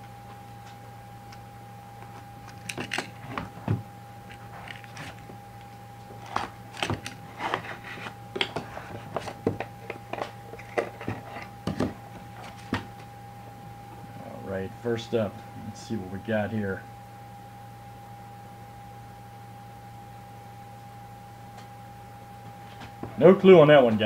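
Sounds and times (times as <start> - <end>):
faint steady hum and whine: 0.0 - 24.0.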